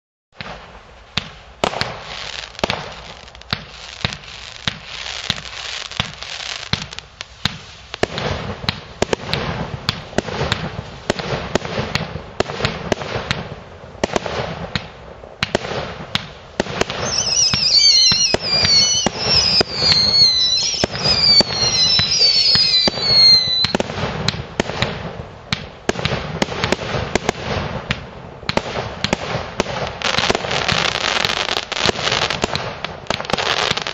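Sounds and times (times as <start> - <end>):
fireworks shots and pops: 0.4 - 33.9
falling firework whistles: 16.8 - 24.3.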